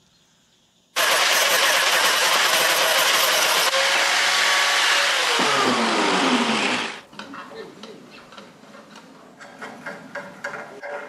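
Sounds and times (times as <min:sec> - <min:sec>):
angle grinder grinding steel: 0:01.0 - 0:07.0.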